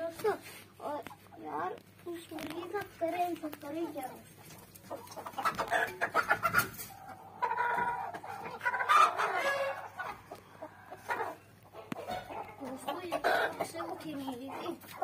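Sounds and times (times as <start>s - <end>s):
chickens clucking and squawking: 0.0s - 15.0s
long loud chicken call: 7.4s - 9.8s.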